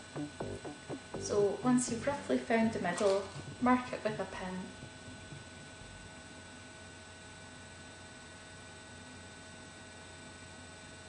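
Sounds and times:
low hiss: 0.0s - 6.5s
faint electrical hum: 0.0s - 11.0s.

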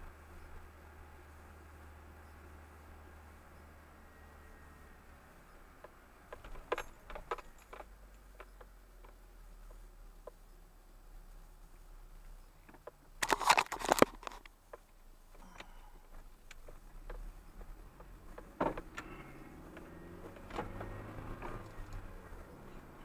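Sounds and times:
car engine hum: 0.0s - 23.0s
light ticks: 14.3s - 22.6s.

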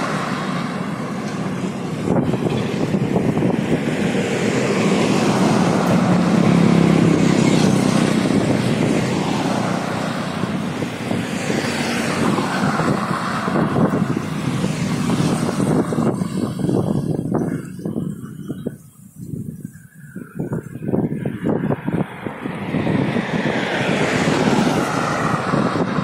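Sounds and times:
truck passing: 0.0s - 18.6s, 20.1s - 26.0s
highway traffic rushing: 0.0s - 26.0s
motorcycle passing: 2.0s - 18.1s, 20.4s - 26.0s.

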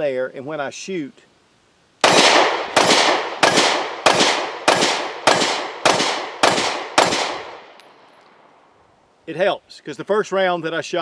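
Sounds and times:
pistol shots echoing: 2.0s - 7.8s.

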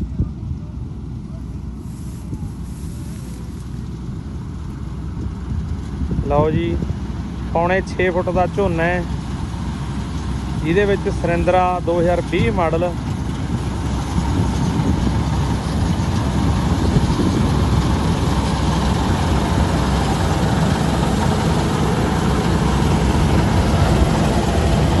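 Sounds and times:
combine harvester engine and threshing: 0.0s - 25.0s.

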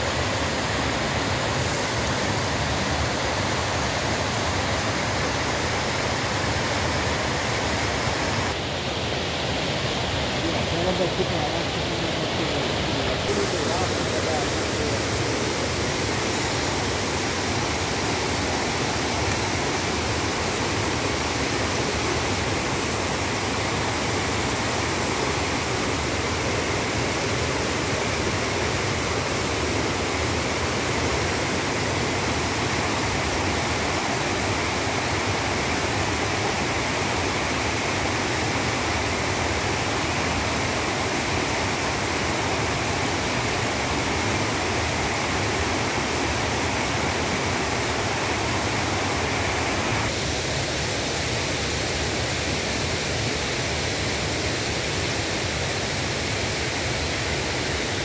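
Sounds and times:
stream rushing over rocks: 0.0s - 58.0s.

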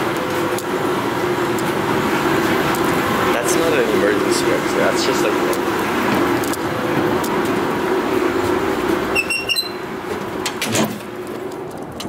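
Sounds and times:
machinery hum: 0.0s - 12.0s
door handle squeaks and clicks: 9.1s - 9.8s.

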